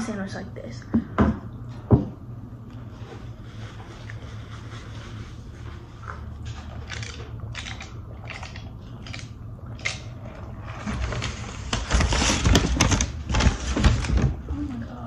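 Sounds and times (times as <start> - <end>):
crisp chewing: 6.5 - 10.2.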